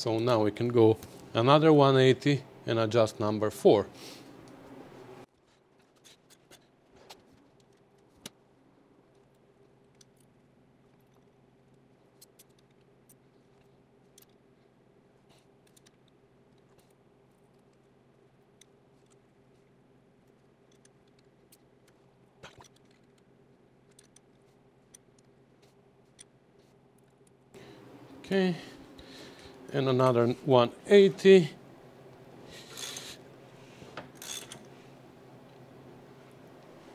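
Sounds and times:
faint steady hum: 0.0s - 36.9s.

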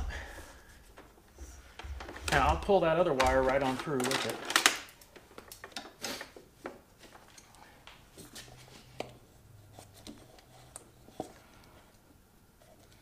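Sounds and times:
clicks and rustles of handling: 0.8s - 13.0s.

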